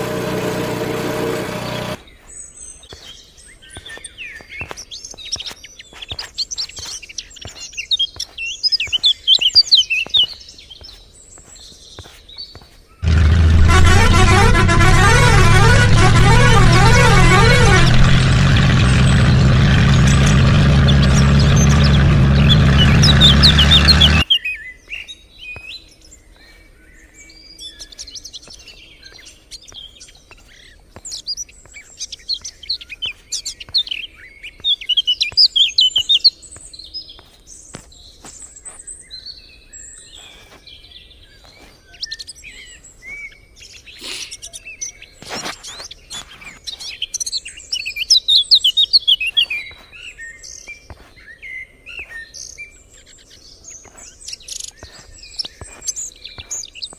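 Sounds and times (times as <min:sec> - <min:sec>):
vehicle engine running: 0:00.0 - 0:02.0, 0:13.0 - 0:24.2
small birds chirping: 0:02.0 - 0:13.0, 0:20.9 - 0:56.9.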